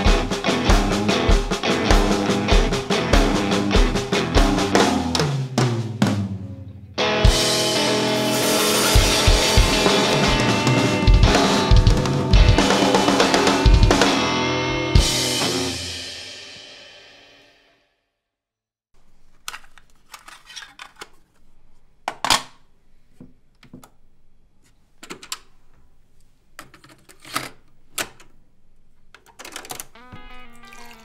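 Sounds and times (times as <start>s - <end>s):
soundtrack music with drums: 0.0s - 17.0s.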